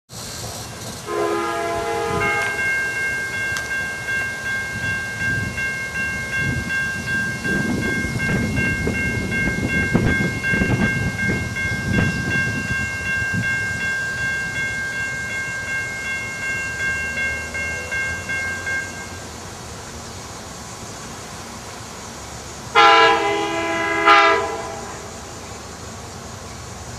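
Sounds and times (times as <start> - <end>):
crossing warning bell ringing: 1.0 - 19.4, 22.8 - 25.5.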